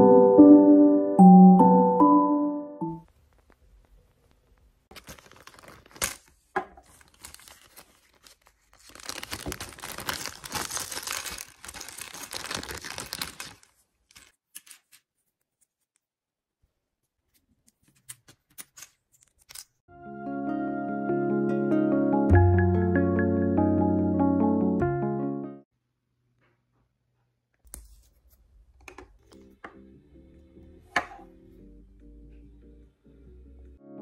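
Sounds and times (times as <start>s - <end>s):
plastic bag crinkling: 4.9s - 14.4s.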